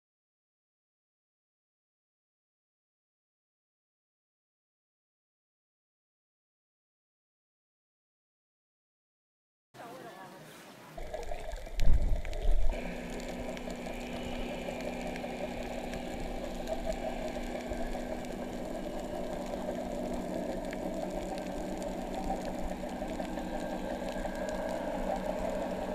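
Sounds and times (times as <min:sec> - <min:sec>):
faint crackle: 0:09.8 - 0:25.9
boat engine hum through water: 0:10.9 - 0:25.9.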